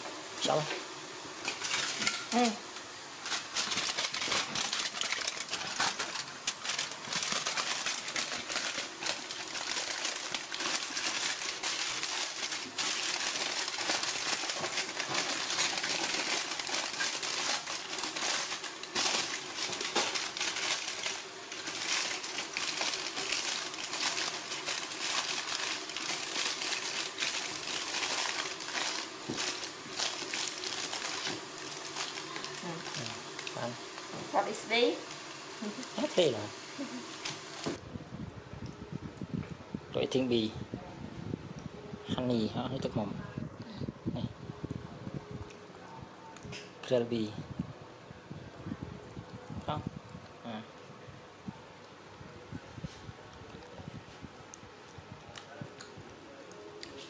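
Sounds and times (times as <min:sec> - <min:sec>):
aluminium foil crinkling: 0:01.4 - 0:37.8.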